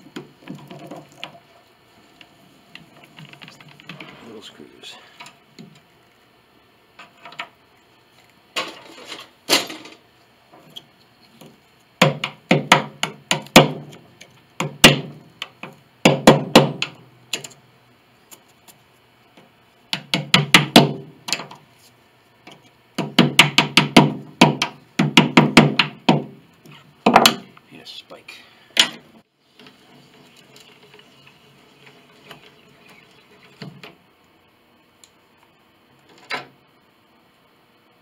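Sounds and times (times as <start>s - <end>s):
hammer tapping a hand tool: 23.0s - 26.3s.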